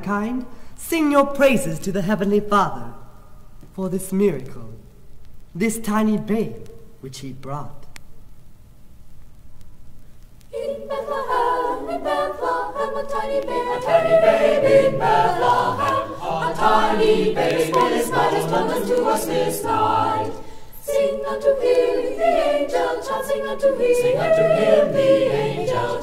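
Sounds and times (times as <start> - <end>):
choir singing a cappella: 10.5 - 26.0.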